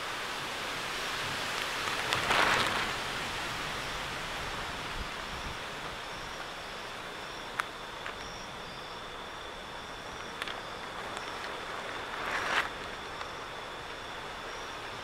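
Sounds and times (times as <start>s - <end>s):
heavy rain hissing: 0.0s - 15.0s.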